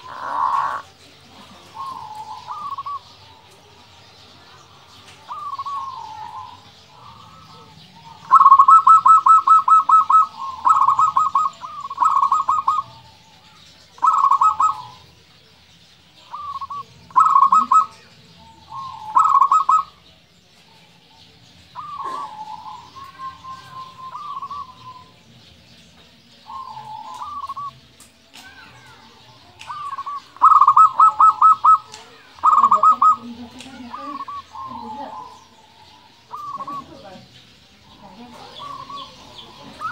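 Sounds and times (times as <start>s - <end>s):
dove staccato cooing: 0.0s - 3.8s, 5.0s - 15.1s, 16.2s - 25.2s, 26.4s - 27.7s, 29.4s - 39.9s.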